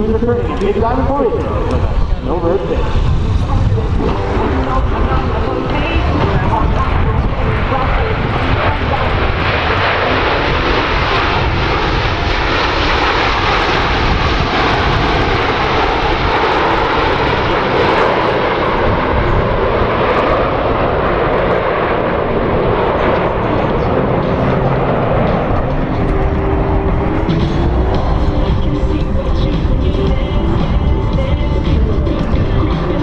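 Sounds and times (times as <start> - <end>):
jet aircraft flying past: 0.0 - 33.0.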